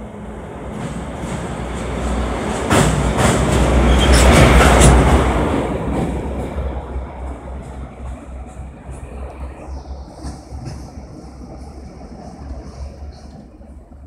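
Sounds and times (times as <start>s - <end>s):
wheels rumbling on rails: 0.0s - 14.0s
wheels clacking over rail joints: 0.7s - 9.0s.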